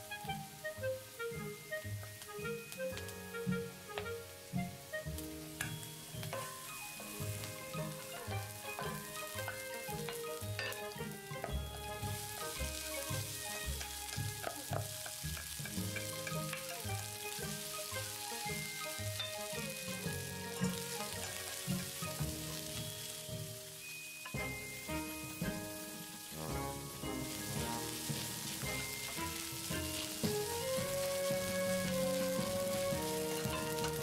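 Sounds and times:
background music: 0:00.0 - 0:34.0
food sizzling in oil: 0:00.0 - 0:34.0
spatula scraping a pan: 0:06.2 - 0:23.7.

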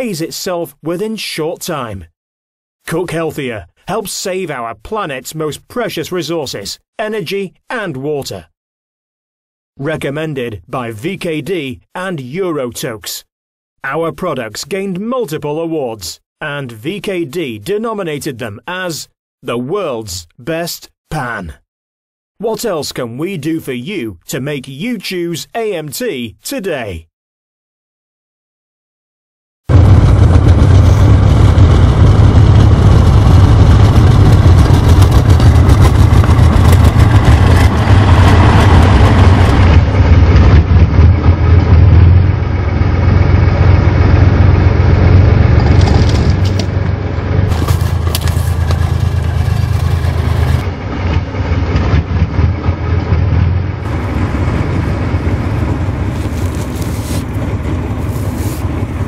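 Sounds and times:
tank engine running: 0:29.7 - 0:59.0.

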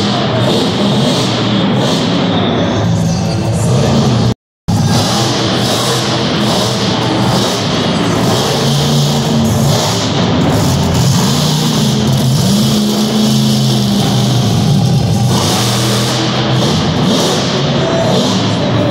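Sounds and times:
monster truck engine revving: 0:00.0 - 0:18.9.

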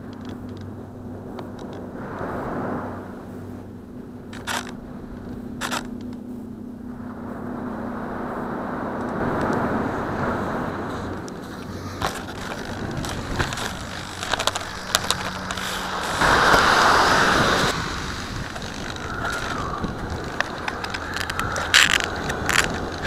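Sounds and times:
wind noise on microphone: 0:00.0 - 0:23.0
rushing burst: 0:11.7 - 0:23.0.

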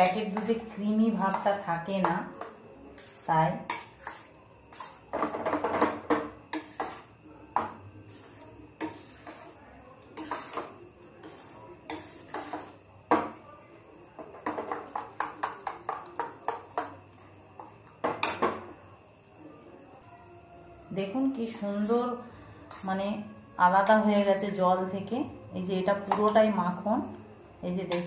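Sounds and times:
spoon knocking and scraping a bowl: 0:00.0 - 0:13.4, 0:14.2 - 0:18.7, 0:22.7 - 0:22.9, 0:25.9 - 0:26.4.

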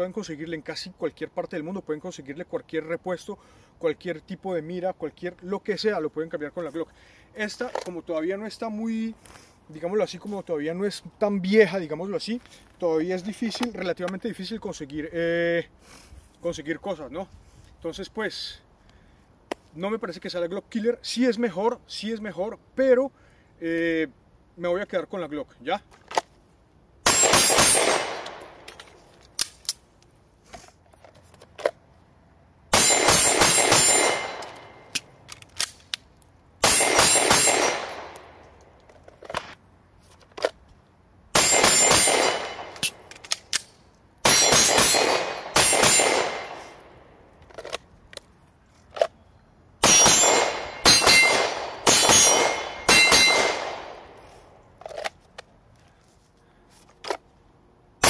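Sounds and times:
pistol shots echoing: 0:27.0 - 0:28.6, 0:32.7 - 0:34.8, 0:36.6 - 0:38.2, 0:41.4 - 0:43.0, 0:44.2 - 0:46.8, 0:49.8 - 0:54.1.

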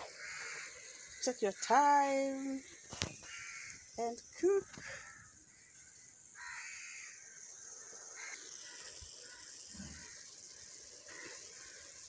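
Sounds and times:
crow cawing: 0:00.0 - 0:01.8, 0:03.1 - 0:03.8, 0:04.7 - 0:05.8, 0:06.4 - 0:07.3, 0:08.2 - 0:11.9
faint steady hiss: 0:00.0 - 0:12.0.

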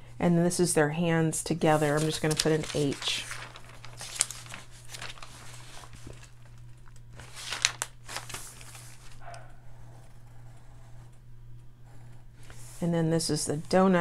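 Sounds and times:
paper rustling and crinkling: 0:01.6 - 0:09.3
pencil scratching on paper: 0:09.3 - 0:11.1.

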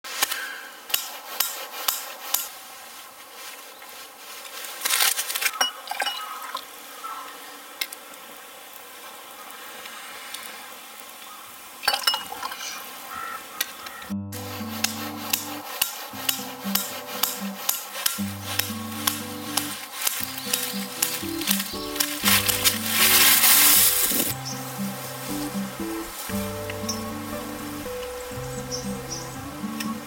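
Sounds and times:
cookware and utensils clinking: 0:05.6 - 0:06.4, 0:11.8 - 0:12.8
music: 0:14.1 - 0:30.0.

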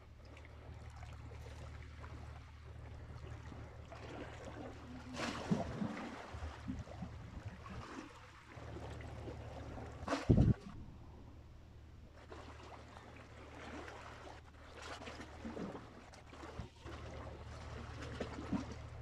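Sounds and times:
steady low rumble: 0:00.0 - 0:12.2
sea waves lapping on rocks: 0:00.5 - 0:10.8, 0:12.2 - 0:19.0.

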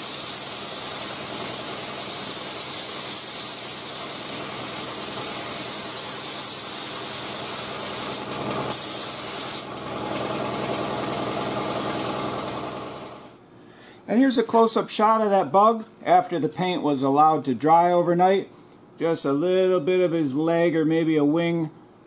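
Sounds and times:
spray gun hissing: 0:00.0 - 0:09.7.

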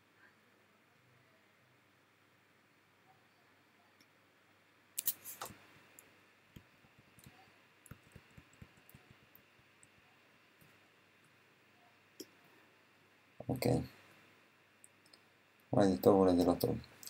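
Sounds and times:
computer clicks and taps: 0:06.5 - 0:10.8.

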